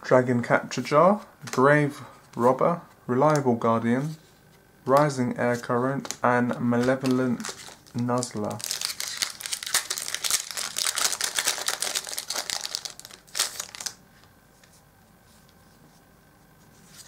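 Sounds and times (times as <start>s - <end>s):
foil wrapper crumpling: 6.1s - 14.0s.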